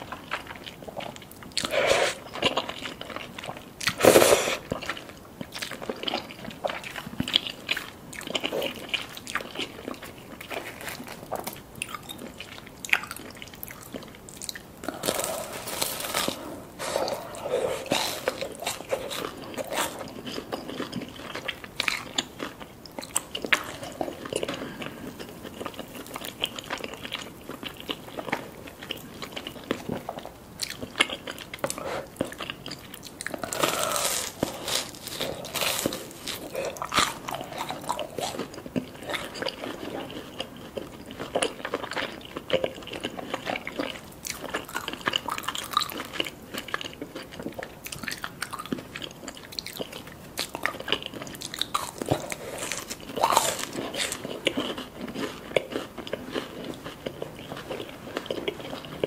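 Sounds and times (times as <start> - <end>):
crunchy chewing: 0.0 - 59.0
slurping noodles: 1.6 - 2.3, 3.9 - 4.7.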